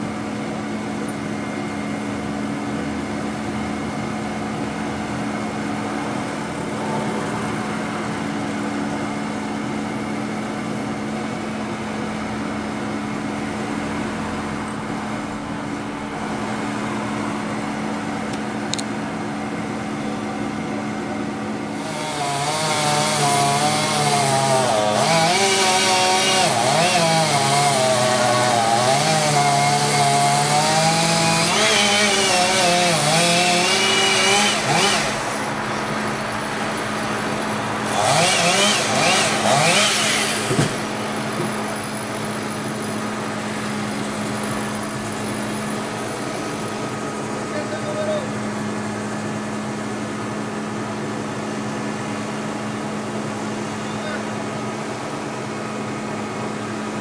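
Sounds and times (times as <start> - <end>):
steady engine hum: 0.0 - 57.0
chainsaw revving: 21.7 - 46.9.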